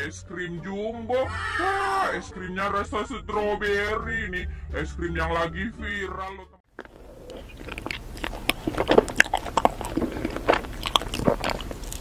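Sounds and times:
person eating ice cream: 0:06.7 - 0:12.0
wet mouth smacks and clicks: 0:06.8 - 0:12.0.

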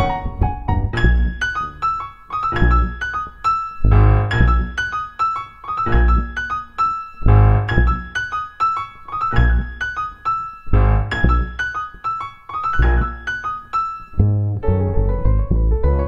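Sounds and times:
plucked double bass: 0:00.0 - 0:01.8, 0:02.6 - 0:03.0, 0:03.8 - 0:04.8, 0:05.9 - 0:06.4, 0:07.3 - 0:08.1, 0:09.4 - 0:09.8, 0:10.7 - 0:11.6, 0:12.8 - 0:13.2, 0:14.2 - 0:16.0
jazz piano: 0:00.0 - 0:16.0.

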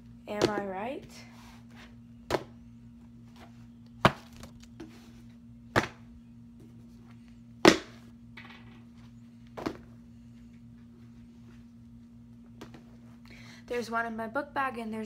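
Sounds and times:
faint steady hum: 0:00.0 - 0:15.0
books thudding onto a stack: 0:09.6 - 0:09.8.

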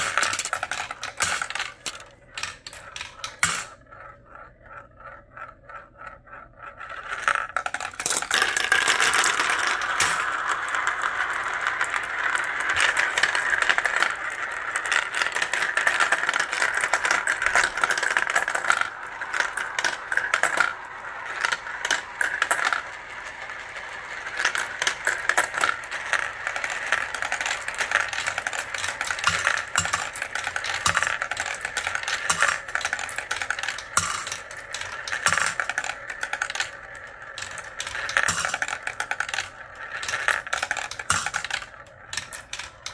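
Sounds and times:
marbles clattering in plastic run: 0:00.0 - 0:42.9.

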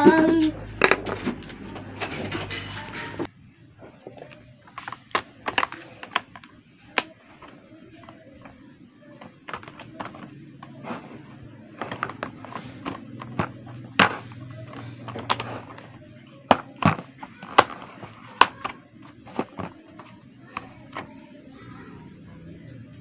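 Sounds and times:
plastic snaps: 0:04.1 - 0:08.6, 0:09.2 - 0:10.8, 0:11.8 - 0:21.1
plastic toy parts clicking: 0:04.2 - 0:08.6, 0:09.2 - 0:10.8, 0:11.8 - 0:21.1.

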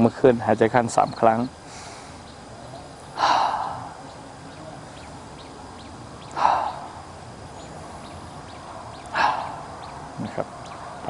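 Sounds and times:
man breathing out forcefully: 0:03.2 - 0:04.0, 0:06.3 - 0:07.1, 0:09.1 - 0:09.8.

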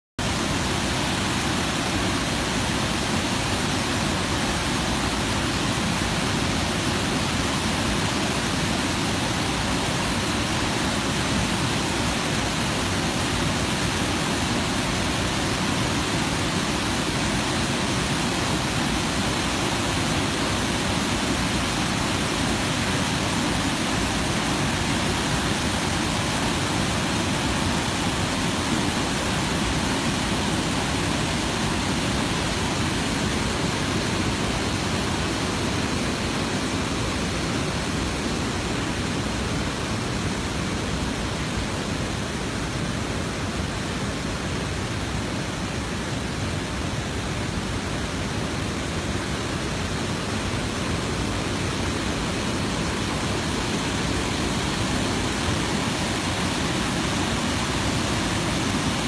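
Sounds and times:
waterfall rushing: 0:00.2 - 0:59.0.

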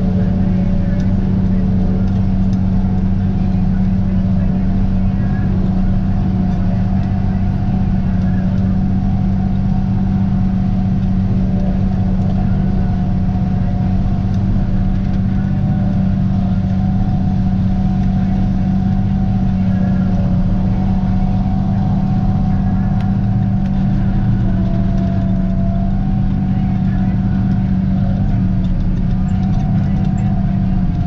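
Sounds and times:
tractor engine under load: 0:00.0 - 0:31.0.

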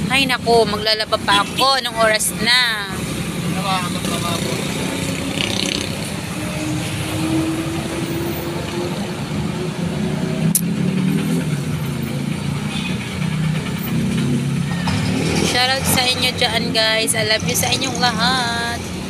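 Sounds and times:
road traffic passing: 0:00.0 - 0:19.0
vehicle passing by: 0:01.4 - 0:19.0.

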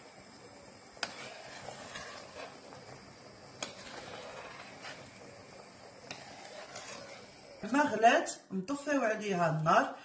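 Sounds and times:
pot boiling and bubbling: 0:00.0 - 0:08.2.

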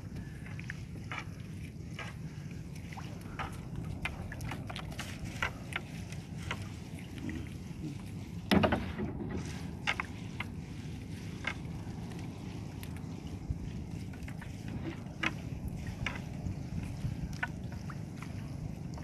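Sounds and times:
loud knock on boat: 0:08.5 - 0:09.3.

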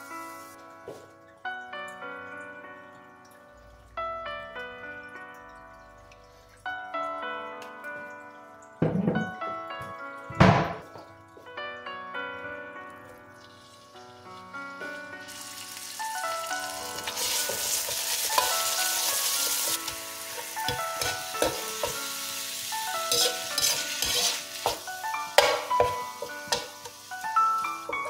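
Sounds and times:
meat sizzling in a pan: 0:00.0 - 0:00.6, 0:13.5 - 0:28.0
metal utensil scraping a pan: 0:17.0 - 0:22.2, 0:22.8 - 0:27.1.

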